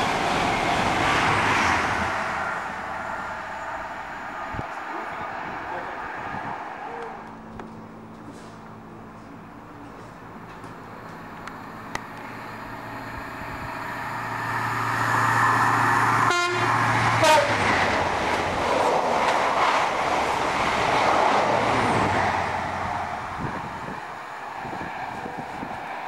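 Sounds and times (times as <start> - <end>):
rush of passing train coaches: 0.0 - 8.7, 9.8 - 26.0
diesel train engine drone: 0.0 - 26.0
train horn: 16.2 - 17.6.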